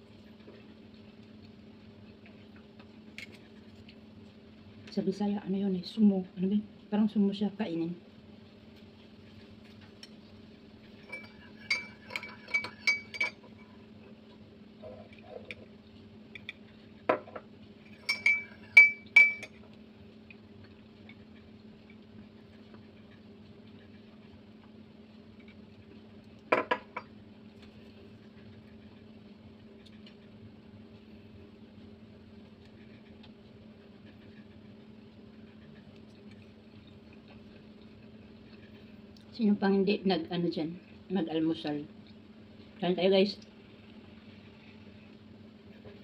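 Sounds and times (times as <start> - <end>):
metal spoon clinking against cup: 11.1 - 13.4, 17.9 - 19.6.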